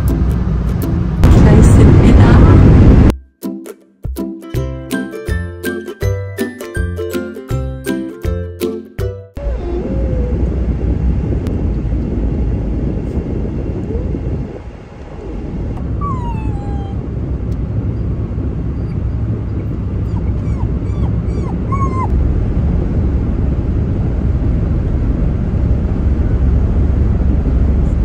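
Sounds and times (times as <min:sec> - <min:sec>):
car road noise: 0:00.0 - 0:03.1, 0:09.4 - 0:28.0
puppy whimpering: 0:09.4 - 0:10.5, 0:16.0 - 0:17.0, 0:18.8 - 0:22.1.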